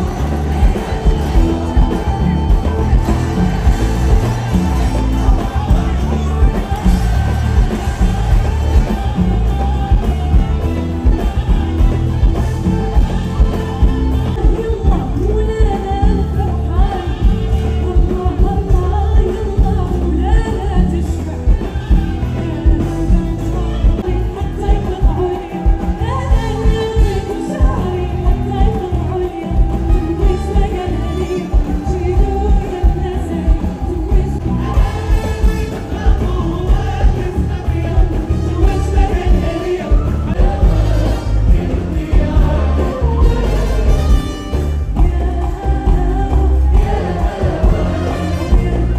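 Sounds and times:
band with heavy bass: 0.0s - 48.9s
woman singing into microphone: 12.8s - 44.2s, 44.8s - 48.9s.

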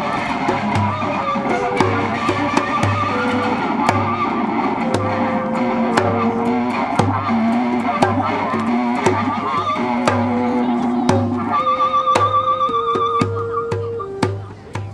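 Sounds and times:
band music: 0.0s - 14.9s
sharp drum strikes: 0.0s - 14.9s.

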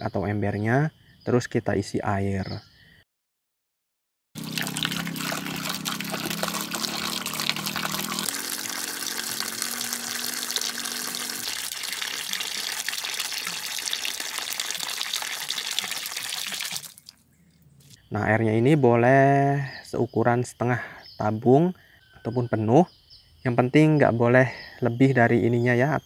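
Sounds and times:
water splashing into metal basin: 4.4s - 17.2s.

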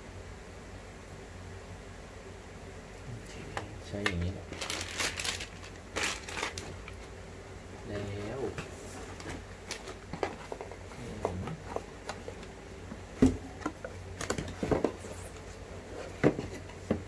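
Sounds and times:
plastic packet rustling: 4.0s - 7.1s, 9.1s - 10.8s
cardboard taps and knocks: 12.9s - 15.0s, 16.2s - 17.0s.

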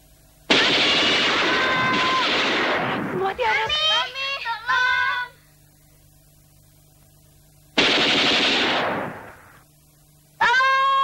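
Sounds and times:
automatic gunfire: 0.5s - 3.5s, 7.8s - 9.6s.

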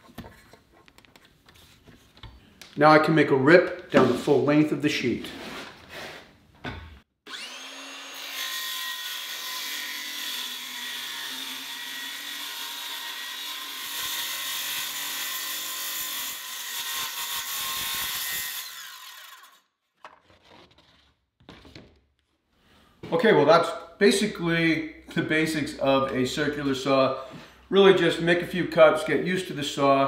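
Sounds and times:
saw motor winding down: 7.3s - 9.4s
circular saw cutting plywood: 7.3s - 19.6s.

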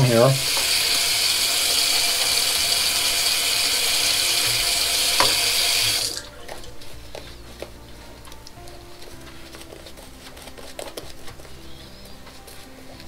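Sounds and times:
tap water running into sink: 0.0s - 6.6s.

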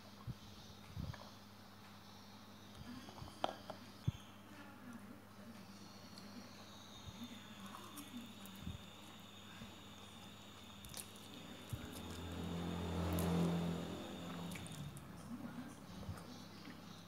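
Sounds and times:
low steady drone: 11.3s - 15.8s
chewing and slurping noodles: 13.1s - 15.0s.

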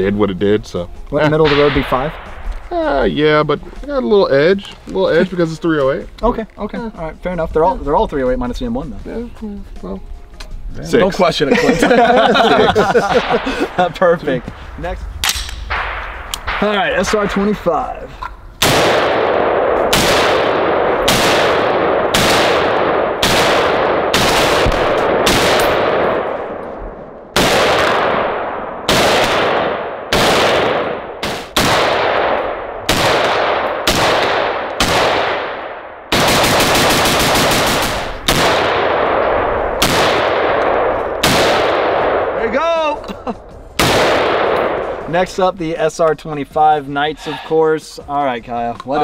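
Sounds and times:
rifle shots with echo: 1.4s - 3.4s, 12.4s - 14.5s, 15.2s - 17.7s, 18.6s - 42.6s, 43.8s - 45.2s.

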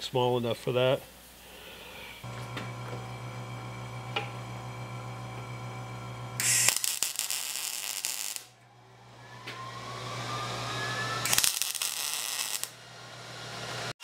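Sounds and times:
welder crackling: 2.3s - 8.6s, 9.5s - 14.0s.

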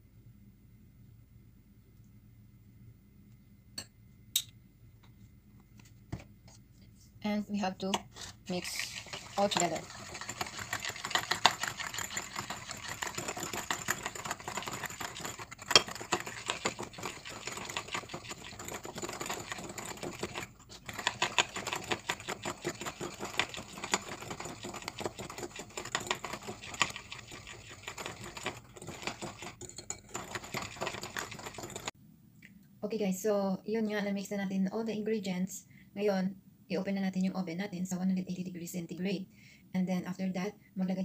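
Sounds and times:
wire whisk beating batter in bowl: 8.4s - 32.0s.

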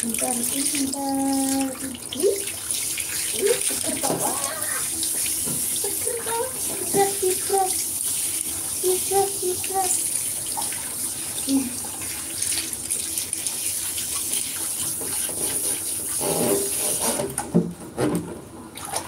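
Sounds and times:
shower head spraying water: 0.0s - 17.3s.

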